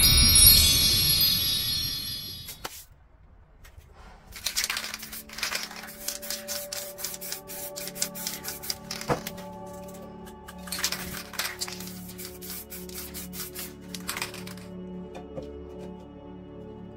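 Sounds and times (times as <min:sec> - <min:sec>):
spray paint can hissing: 0:04.6 - 0:09.3, 0:10.8 - 0:14.6.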